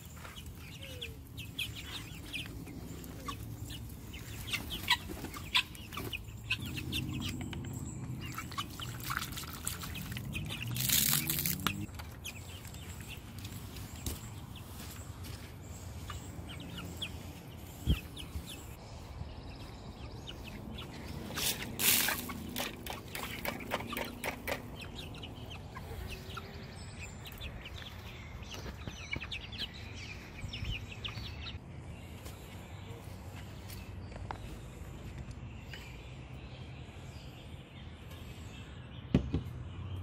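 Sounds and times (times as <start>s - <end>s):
chickens clucking: 0.0s - 31.6s.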